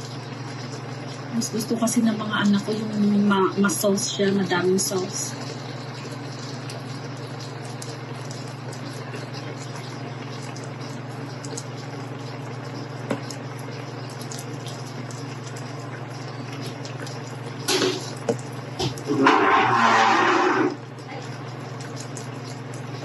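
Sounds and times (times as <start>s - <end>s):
steady low hum: 0.0s - 23.0s
sauce bubbles popping: 5.4s - 23.0s.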